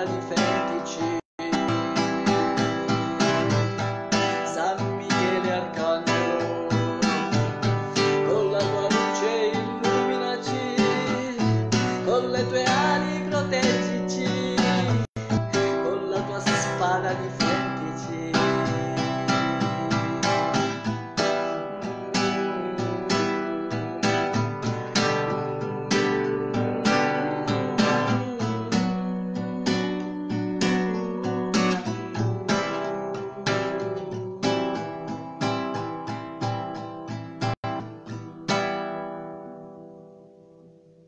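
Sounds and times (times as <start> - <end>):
acoustic guitar strumming: 0.0 - 41.0.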